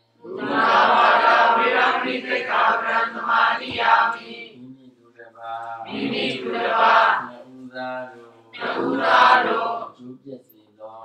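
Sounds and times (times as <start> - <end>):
group chanting: 0.2 - 4.6, 5.8 - 10.0.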